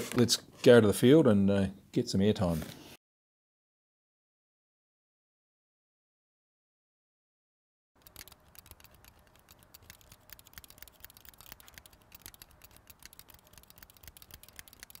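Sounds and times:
irregular crackling clicks: 8.0s - 15.0s.

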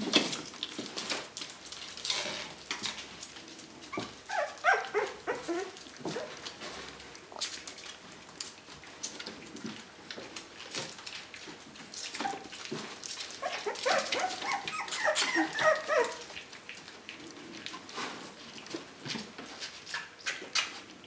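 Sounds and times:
paws rustling on newspaper: 0.0s - 21.0s
puppies yapping and whimpering: 3.8s - 6.6s, 12.0s - 17.0s.

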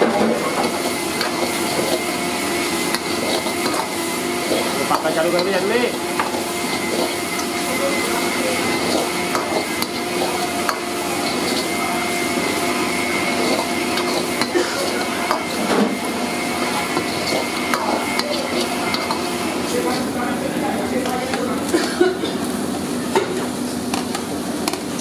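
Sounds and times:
onions frying: 0.0s - 25.0s
steel ladle scraping an iron wok: 0.4s - 7.6s, 8.3s - 20.0s.

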